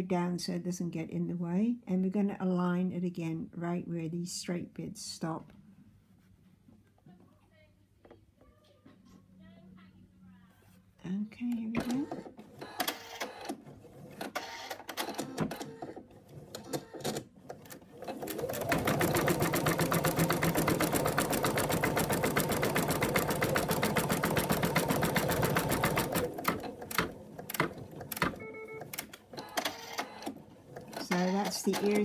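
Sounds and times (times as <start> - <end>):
embroidery machine needle strokes: 28.8 - 32.0.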